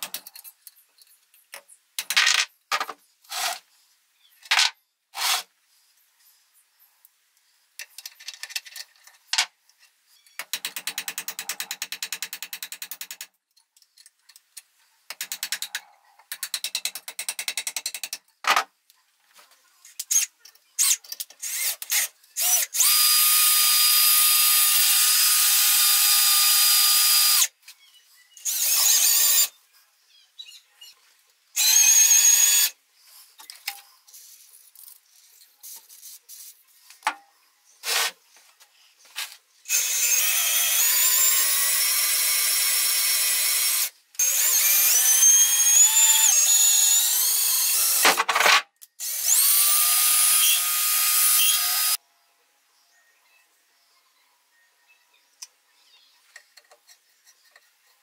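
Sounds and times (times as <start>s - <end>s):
power drill whining: 20.8s - 27.5s, 39.7s - 48.0s, 49.0s - 52.0s.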